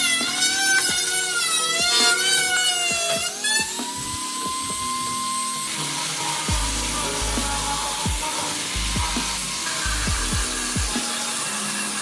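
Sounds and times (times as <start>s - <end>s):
high motor whine: 0.0s - 12.0s
music with deep bass beat: 6.4s - 11.4s.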